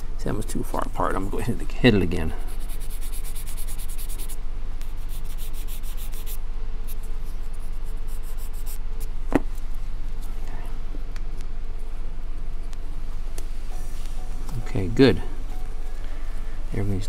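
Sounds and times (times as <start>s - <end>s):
steady low hum: 0.0s - 17.0s
sandpaper scratching on wood: 2.4s - 4.4s, 5.0s - 6.4s.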